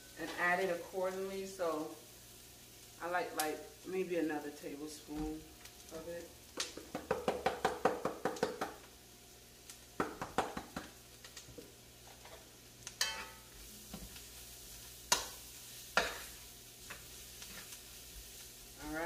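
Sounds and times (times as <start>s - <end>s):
vegetables sizzling in oil: 0.0s - 19.0s
spoon knocking on pot: 6.8s - 8.8s.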